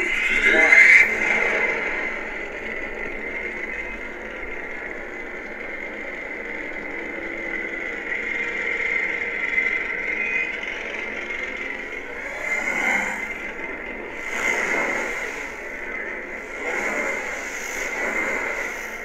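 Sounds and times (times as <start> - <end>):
high whine: 0.0 - 19.0
static-like hiss: 12.0 - 19.0.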